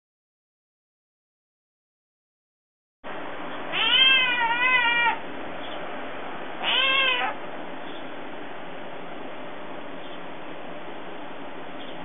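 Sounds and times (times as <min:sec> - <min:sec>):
kitten meowing: 0:03.7 - 0:05.2, 0:06.6 - 0:07.4.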